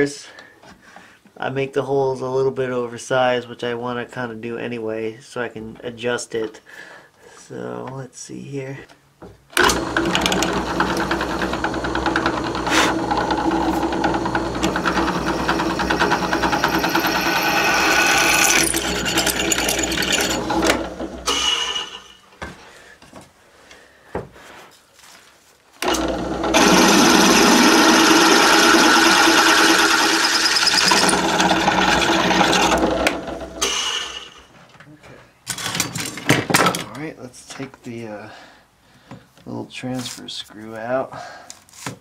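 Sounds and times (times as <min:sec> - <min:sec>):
drill bit cutting cast iron: 0:09.6 - 0:22.2, 0:25.8 - 0:34.4.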